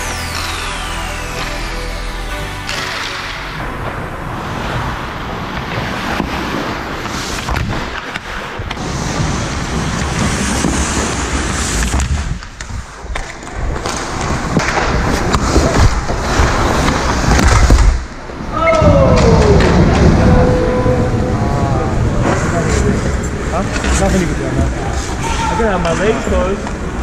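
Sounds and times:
skate blades scraping ice: 4.4 - 18.0
sharp knocks of sticks and puck: 5.6 - 8.8, 11.8 - 18.0.

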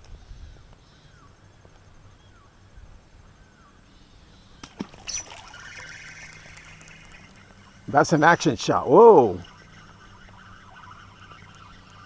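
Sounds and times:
water splashing: 4.6 - 12.0.

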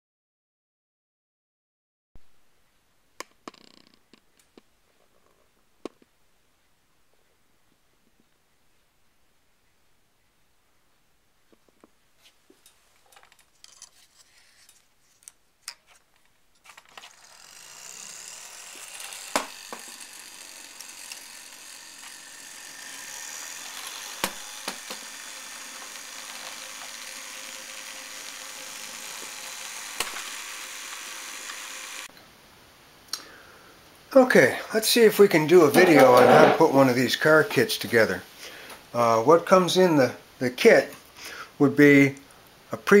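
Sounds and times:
small electric motor whirring: 16.6 - 32.1.

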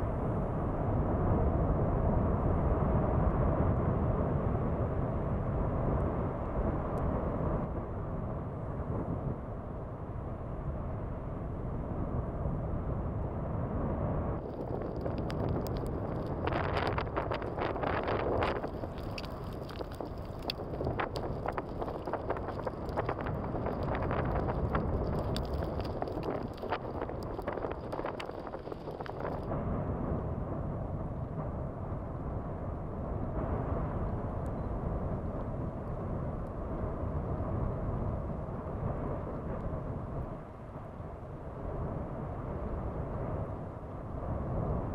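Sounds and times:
volcanic vent rumbling: 0.0 - 44.9
wind buffeting microphone: 0.0 - 44.9
sharp clicks and crackles: 14.4 - 29.5.

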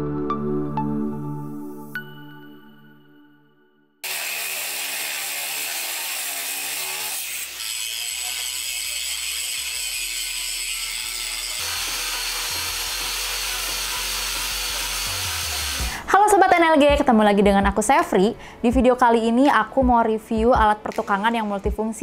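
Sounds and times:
angle grinder cutting steel: 4.0 - 15.9.

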